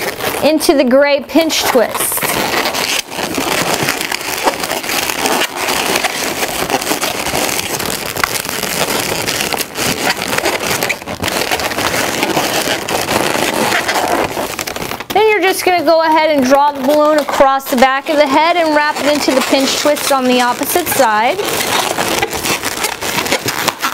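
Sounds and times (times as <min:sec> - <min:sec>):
balloons rubbing and crackling: 0:00.0 - 0:23.9.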